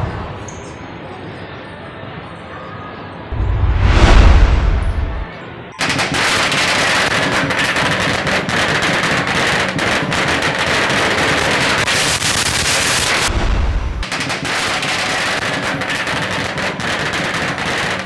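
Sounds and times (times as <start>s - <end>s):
deep rumbling boom with whoosh: 3.3s - 5.3s, 13.3s - 14.0s
firecrackers crackling: 3.7s - 18.0s.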